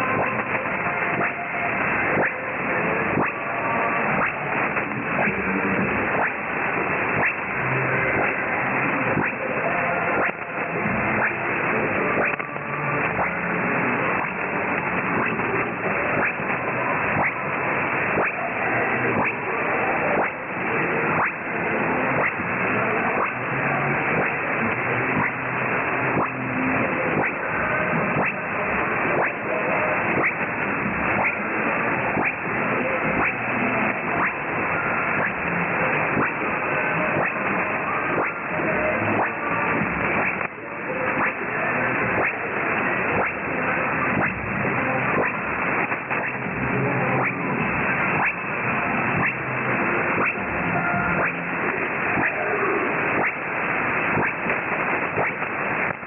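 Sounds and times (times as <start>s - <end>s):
faint weak radio station: 0.0s - 56.0s
radio band noise: 0.0s - 56.0s
static crackles: 0.0s - 56.0s.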